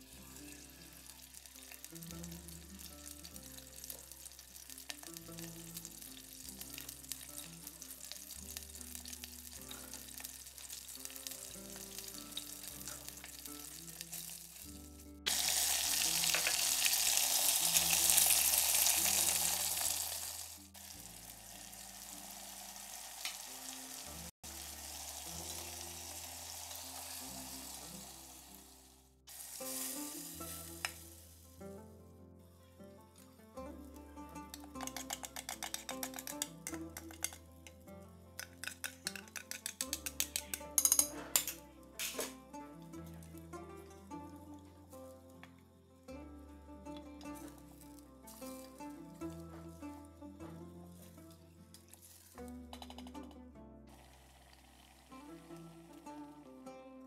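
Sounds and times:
chicken frying sizzle: 0:00.0 - 0:31.6, 0:34.5 - 0:37.8, 0:38.4 - 0:42.3, 0:47.4 - 0:50.0, 0:51.8 - 0:53.0, 0:53.9 - 0:56.4
background music: 0:00.0 - 0:57.0.

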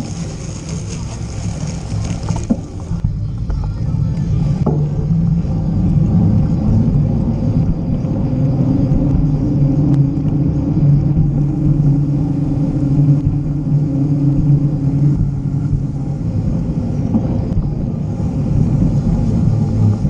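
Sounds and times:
bike tyres rolling on pavement: 0:00.0 - 0:20.0.

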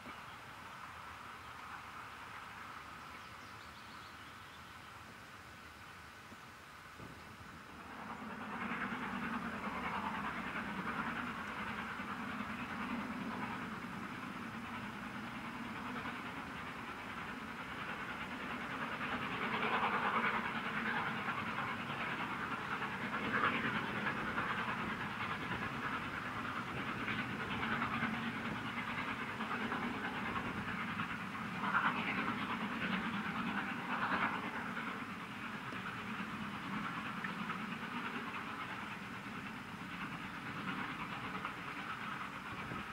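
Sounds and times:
steam locomotive exhaust chuffing: 0:07.4 - 0:42.9.

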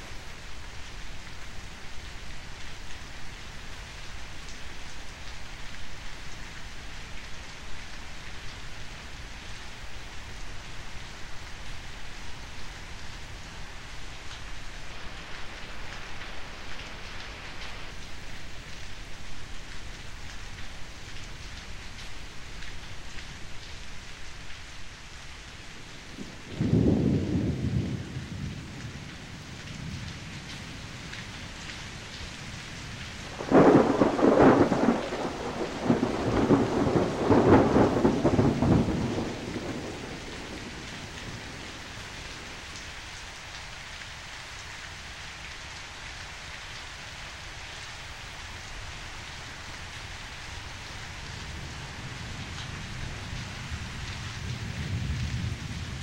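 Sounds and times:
steady rain: 0:00.0 - 0:56.0
thunder rumbling: 0:26.2 - 0:30.3, 0:33.2 - 0:42.6, 0:51.5 - 0:56.0.

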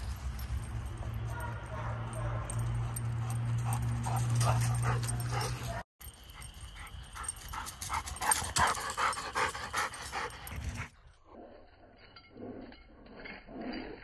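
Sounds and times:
dog panting: 0:01.4 - 0:05.8, 0:06.8 - 0:10.9.

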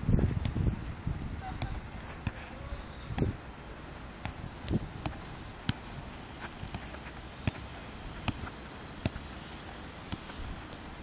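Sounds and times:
football being kicked: 0:04.2 - 0:05.9, 0:06.6 - 0:09.4, 0:10.0 - 0:10.4.

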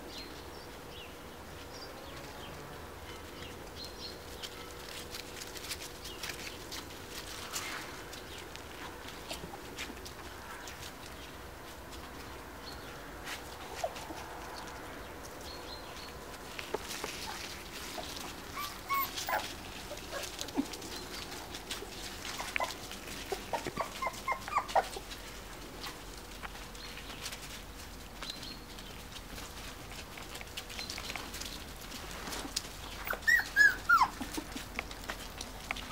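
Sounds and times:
puppies whimpering and yipping: 0:13.6 - 0:14.2, 0:16.6 - 0:25.3, 0:32.2 - 0:35.2.

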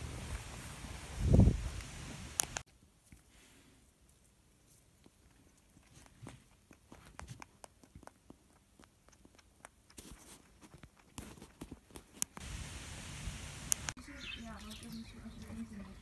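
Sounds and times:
rabbit crunching dry treat: 0:04.1 - 0:12.4.

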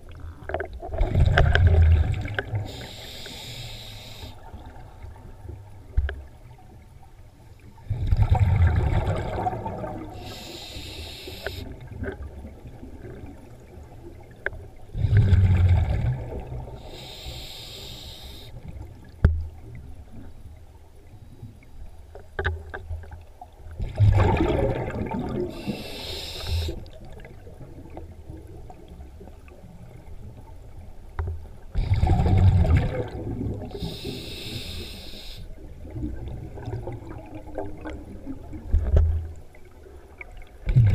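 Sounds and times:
exhaled bubbles burbling: 0:00.0 - 0:02.7, 0:07.9 - 0:10.2, 0:15.0 - 0:16.8, 0:23.8 - 0:25.7, 0:31.8 - 0:33.9
regulator air hiss: 0:02.7 - 0:04.5, 0:10.2 - 0:11.7, 0:16.8 - 0:18.6, 0:25.5 - 0:26.8, 0:33.8 - 0:35.5.

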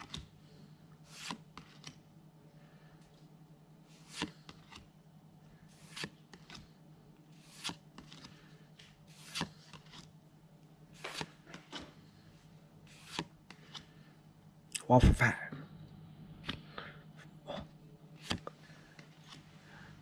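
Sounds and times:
papery card swish: 0:11.0 - 0:11.8, 0:12.9 - 0:13.8.

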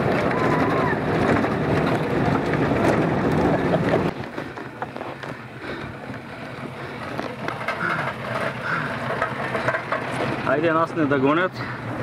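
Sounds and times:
vehicle engine and road noise: 0:00.0 - 0:12.0.

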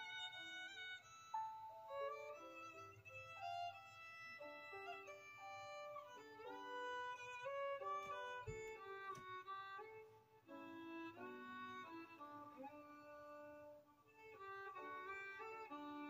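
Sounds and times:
violin melody: 0:00.0 - 0:16.0.

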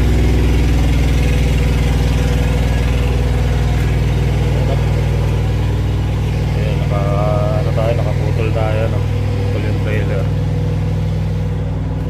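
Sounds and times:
truck diesel engine idling: 0:00.0 - 0:12.0.

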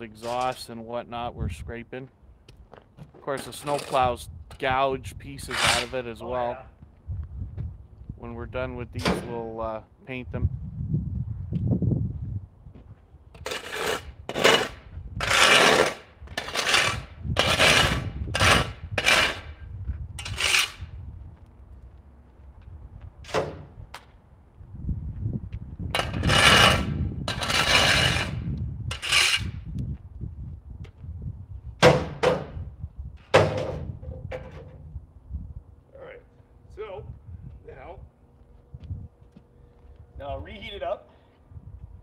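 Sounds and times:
metal tool scraping asphalt: 0:00.0 - 0:00.8, 0:03.3 - 0:04.2, 0:05.3 - 0:06.3, 0:13.4 - 0:20.9, 0:25.9 - 0:29.6
low steady rumble: 0:32.6 - 0:42.0.

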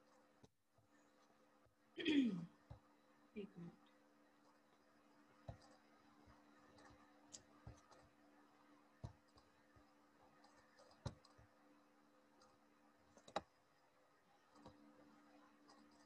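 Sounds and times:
faint low hum: 0:00.0 - 0:16.0
computer mouse clicks: 0:05.4 - 0:08.2, 0:09.0 - 0:11.6, 0:12.3 - 0:13.6, 0:14.4 - 0:14.8, 0:15.6 - 0:16.0.

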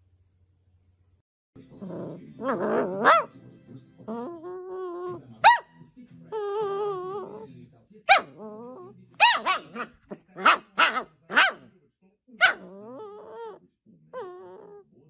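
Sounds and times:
puppy yipping and crying: 0:12.4 - 0:13.6, 0:14.2 - 0:14.8.

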